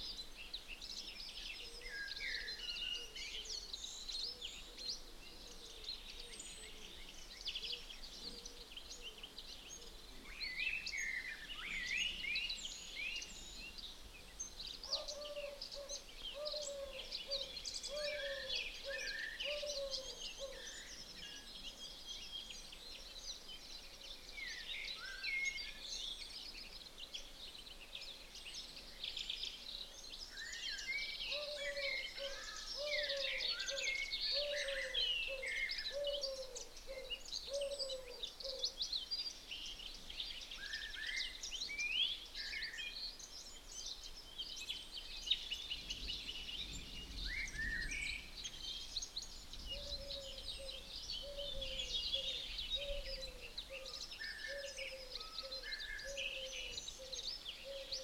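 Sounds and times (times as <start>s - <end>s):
birds singing and chirping: 0.0s - 58.0s
low repeated bird call: 31.2s - 38.8s, 45.4s - 58.0s.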